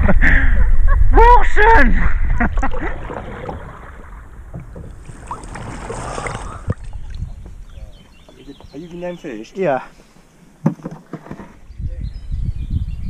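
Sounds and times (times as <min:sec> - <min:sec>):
river water sloshing and splashing: 0:02.5 - 0:08.4.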